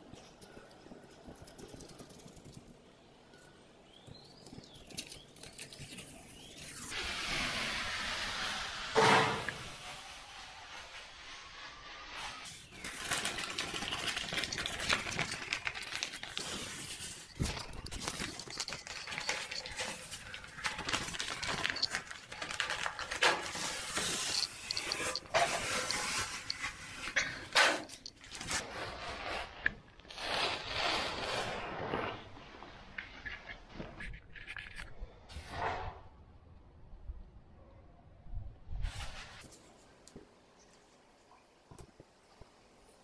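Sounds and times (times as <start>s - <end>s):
wallpaper tearing and crackling: 12.4s - 34.2s.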